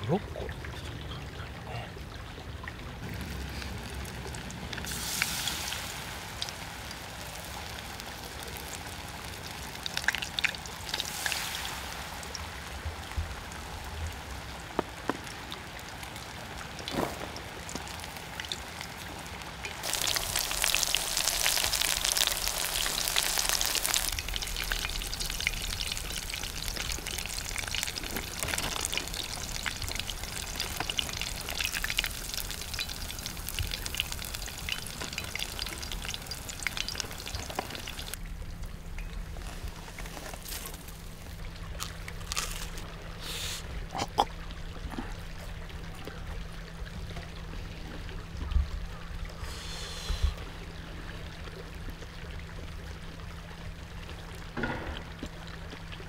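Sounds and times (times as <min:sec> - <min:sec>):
deep-frying in hot oil sizzling: 0:03.1 - 0:43.6.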